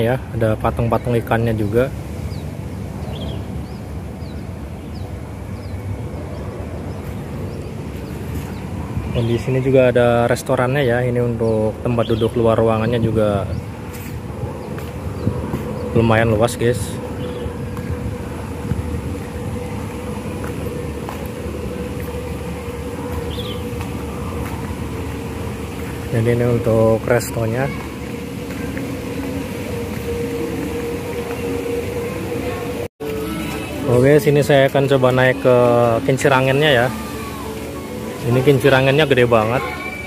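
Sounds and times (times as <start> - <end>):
low outdoor background rumble: 0.0 - 32.9
mid-pitched machine hum: 0.0 - 40.0
small bird chirping: 23.3 - 23.7.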